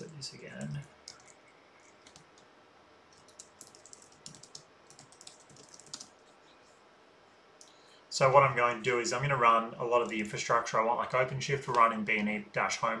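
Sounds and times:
keyboard typing: 0.0s - 2.5s, 3.1s - 6.4s.

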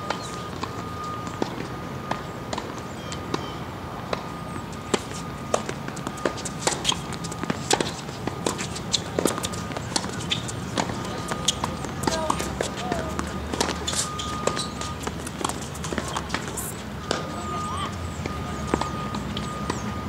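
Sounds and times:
footsteps on hard court: 4.1s - 20.0s.

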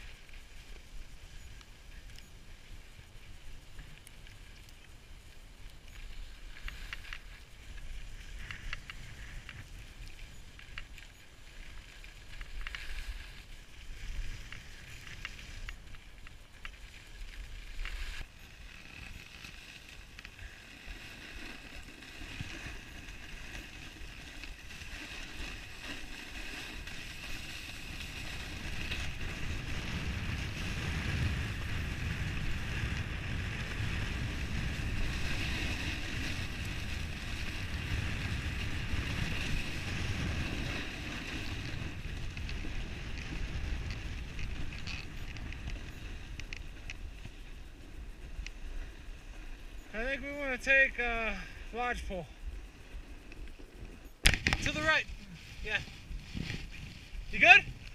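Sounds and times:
skis scraping over snow: 0.0s - 57.9s
wind rumbling on microphone: 0.0s - 57.9s
hiss of snow under skis: 11.3s - 50.2s, 54.7s - 57.9s.

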